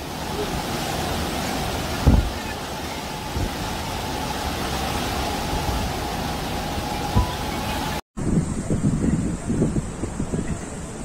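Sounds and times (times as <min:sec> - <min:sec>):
low thud of waves: 0:00.0 - 0:08.5
storm surf roaring: 0:00.0 - 0:11.0.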